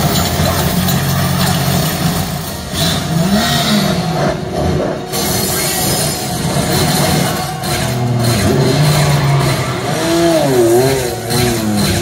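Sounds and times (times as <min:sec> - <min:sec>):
vehicle engines revving: 0:00.0 - 0:12.0
crash and debris noise: 0:05.0 - 0:12.0.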